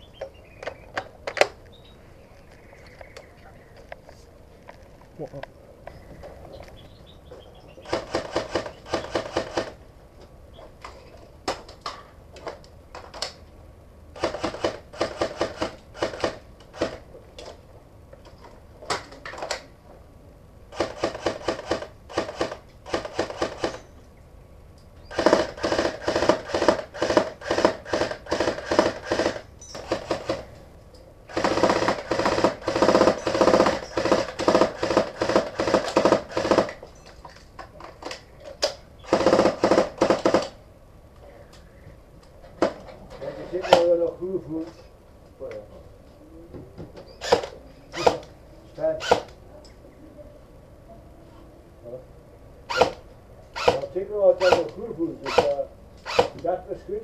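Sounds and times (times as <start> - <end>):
airsoft rifle firing: 7.8 - 9.8, 14.2 - 17.1, 20.7 - 23.8, 25.1 - 30.5, 31.3 - 36.8, 39.0 - 40.6, 47.2 - 48.3, 53.6 - 54.7, 55.3 - 56.4.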